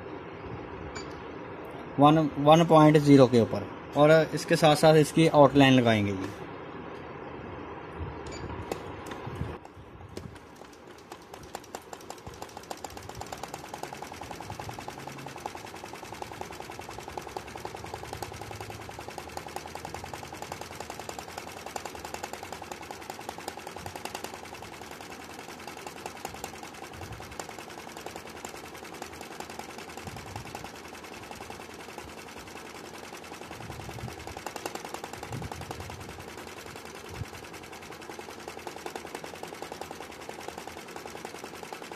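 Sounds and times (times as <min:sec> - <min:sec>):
sewing machine stitching: 0:10.3 - 0:41.9.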